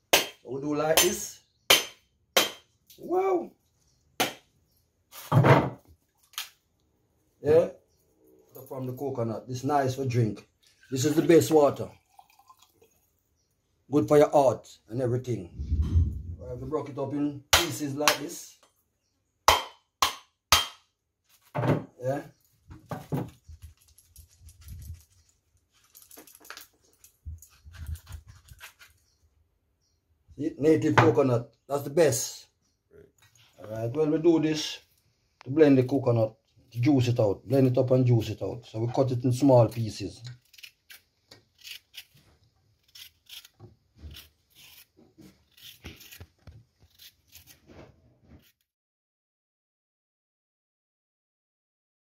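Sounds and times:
knife scraping coconut shell: 0:27.4 - 0:29.2, 0:39.6 - 0:48.6.

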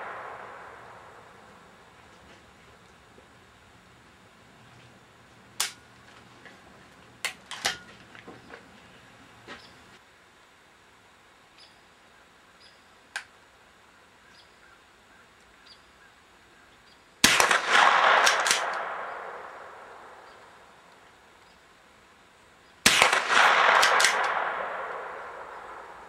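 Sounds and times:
rifle shots: 0:00.0 - 0:01.5, 0:17.2 - 0:20.3, 0:22.8 - 0:26.0
quick clicks of rifle action: 0:18.2 - 0:18.9, 0:23.0 - 0:24.4.

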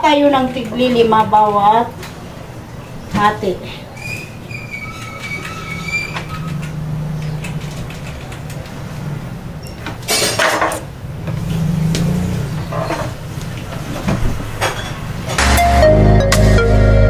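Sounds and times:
low mechanical drone: 0:04.3 - 0:09.8.

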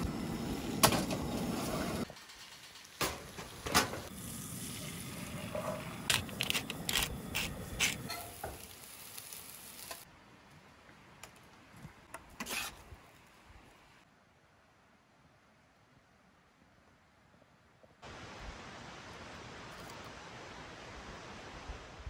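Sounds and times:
eggs sizzling in skillet: 0:00.0 - 0:10.1
metal spatula scraping pan: 0:12.4 - 0:12.8.

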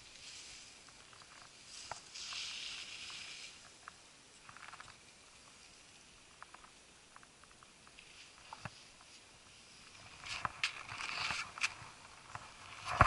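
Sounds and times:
skis scraping over snow: 0:00.0 - 0:03.8, 0:08.0 - 0:13.0.

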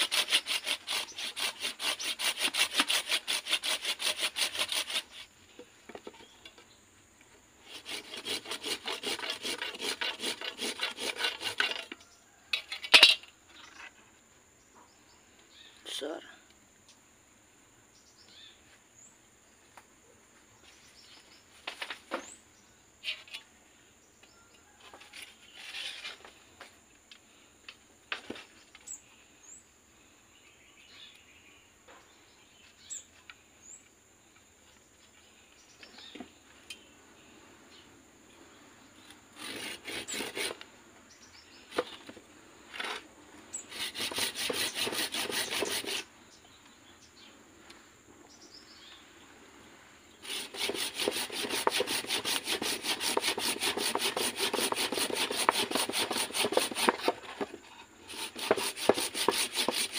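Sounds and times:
hand saw cutting wood: 0:00.0 - 0:05.3, 0:07.6 - 0:11.9, 0:39.4 - 0:40.6, 0:43.6 - 0:46.1, 0:50.2 - 0:59.9.

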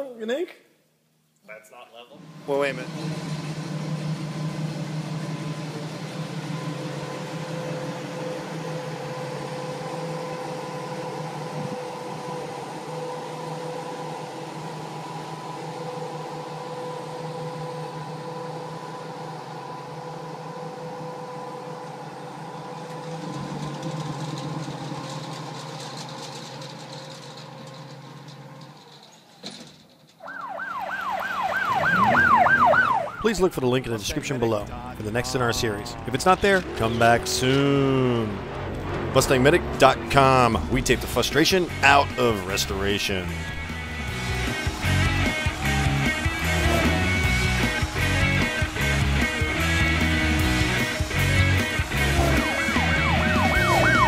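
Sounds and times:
steady droning hum: 0:02.1 - 0:28.1, 0:31.9 - 0:54.0
electronic siren wailing: 0:06.4 - 0:24.8, 0:30.2 - 0:33.8, 0:43.3 - 0:54.0.

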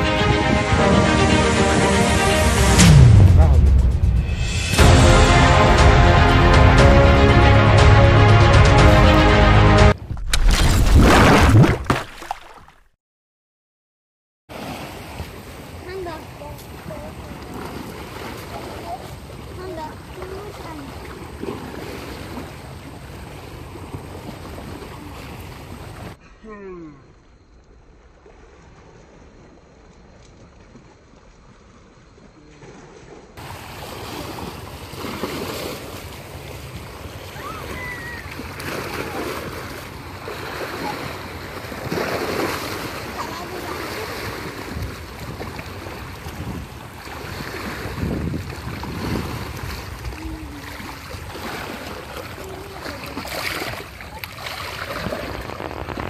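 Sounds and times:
waves lapping: 0:00.0 - 0:12.8, 0:14.5 - 0:26.2, 0:27.8 - 0:56.0
wind buffeting microphone: 0:43.6 - 0:52.8, 0:53.6 - 0:56.0.

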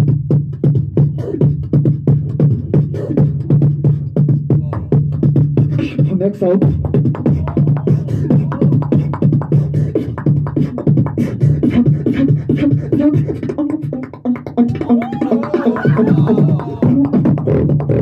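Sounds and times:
beatboxing through microphone: 0:00.0 - 0:18.0
wavering pitch-bending vocal sounds: 0:04.5 - 0:18.0.

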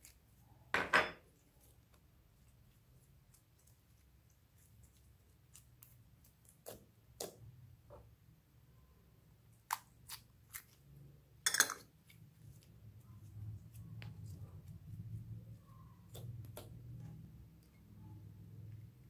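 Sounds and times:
slime crackling squelch: 0:01.3 - 0:07.7, 0:09.4 - 0:11.2.

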